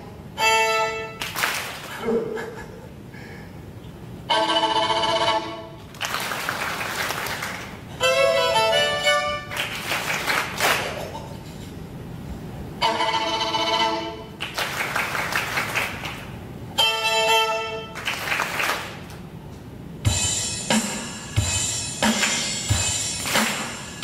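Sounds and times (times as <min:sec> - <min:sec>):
violin playing held notes: 0:00.4 - 0:01.2, 0:04.3 - 0:05.8, 0:08.0 - 0:09.5, 0:12.8 - 0:14.3, 0:16.8 - 0:18.0.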